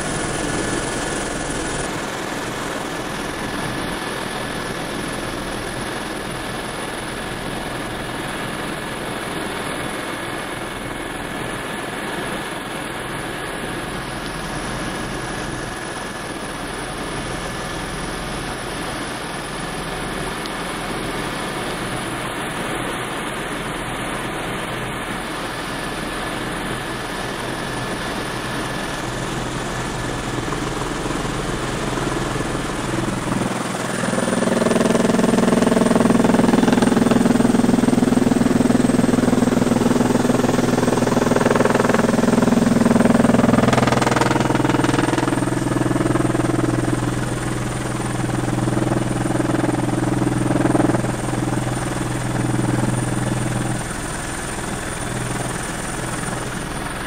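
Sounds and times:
helicopter cabin drone: 0:00.0 - 0:57.0
humming tones shifting pitch: 0:29.8 - 0:55.8.

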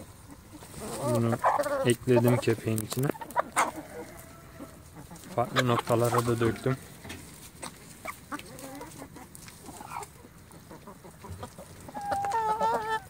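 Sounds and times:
hens clucking: 0:00.0 - 0:13.0
hen drawn-out call: 0:11.9 - 0:13.0.

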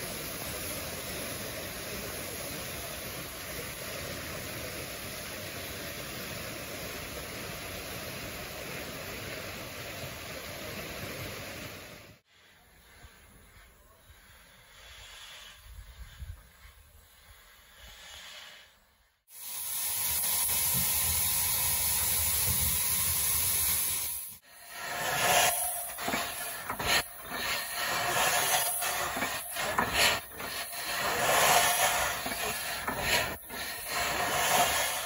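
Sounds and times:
steam locomotive hissing: 0:00.0 - 0:35.0.

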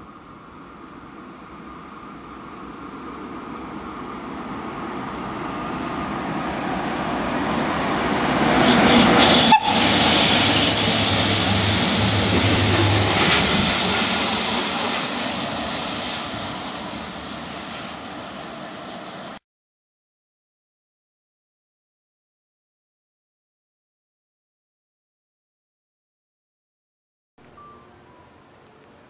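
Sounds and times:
locomotive low hum: 0:00.0 - 0:19.4
train wheel and rail noise: 0:00.0 - 0:19.4, 0:27.4 - 0:29.0.

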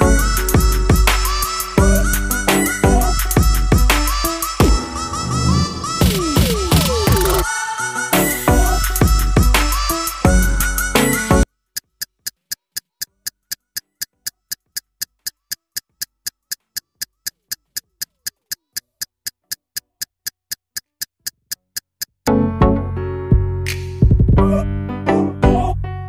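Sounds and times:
music: 0:00.0 - 0:11.5, 0:22.3 - 0:26.0
clock ticking: 0:11.7 - 0:22.4.

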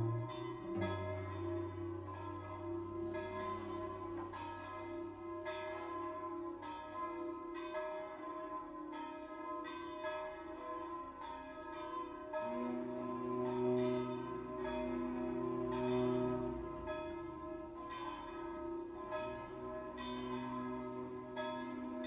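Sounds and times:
low held note: 0:00.0 - 0:05.9, 0:12.4 - 0:22.0
church bells pealing: 0:00.0 - 0:22.0.

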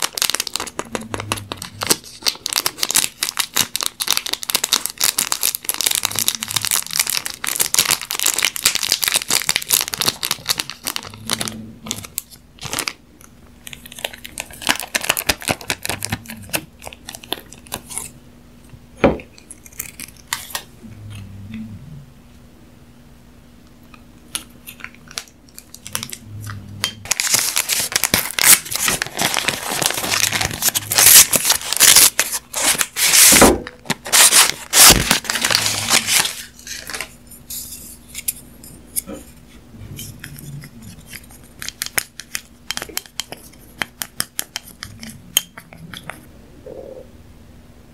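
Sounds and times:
plastic and paper packaging crinkling: 0:00.0 - 0:13.0, 0:13.6 - 0:18.1, 0:27.0 - 0:38.4
paper sleeve tearing: 0:27.1 - 0:37.0.

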